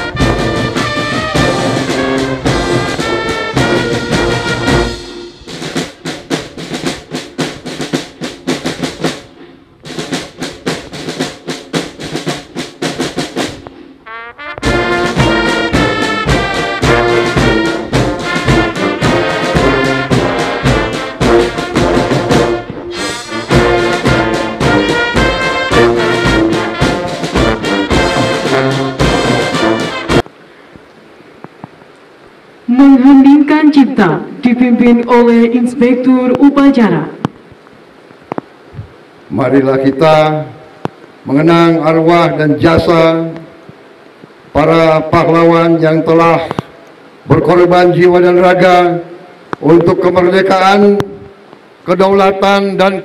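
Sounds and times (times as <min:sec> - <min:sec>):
brass band playing: 0:00.0 - 0:30.3.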